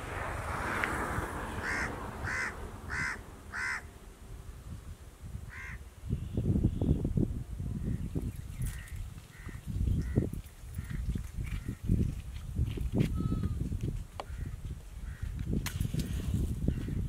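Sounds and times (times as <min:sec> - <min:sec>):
wind gusts on microphone: 0:00.0 - 0:17.0
crow cawing: 0:01.6 - 0:03.9, 0:05.5 - 0:05.8, 0:08.8 - 0:10.2.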